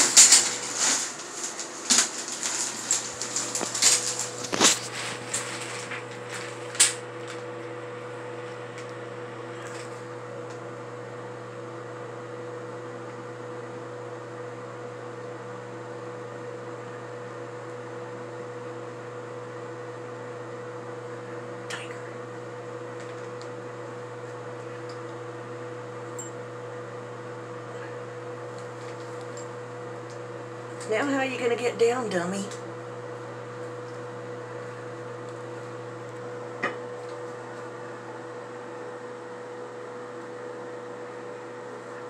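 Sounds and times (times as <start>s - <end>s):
clicks and rustles: 0.0s - 7.4s
ventilation fan motor humming: 0.0s - 42.0s.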